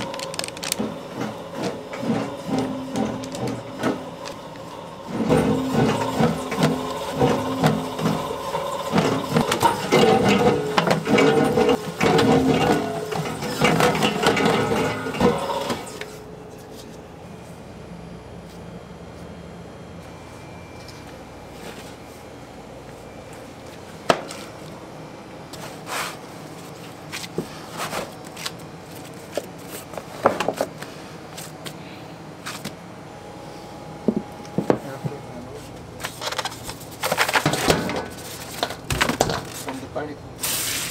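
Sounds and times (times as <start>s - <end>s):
dough mixer motor hum: 0.0s - 16.2s
kitchen hum: 0.0s - 40.9s.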